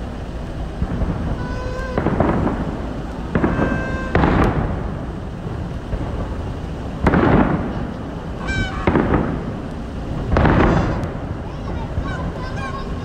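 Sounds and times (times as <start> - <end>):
firework booms with rumbling echo: 0.0 - 13.0
short pitched tones: 3.3 - 4.6, 8.4 - 9.3.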